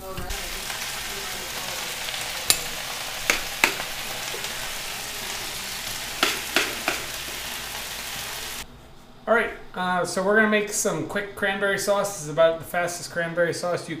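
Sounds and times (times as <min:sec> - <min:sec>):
greens sizzling in a pan: 0:00.0 - 0:08.6
cookware knocking: 0:02.5 - 0:04.0, 0:06.2 - 0:07.2.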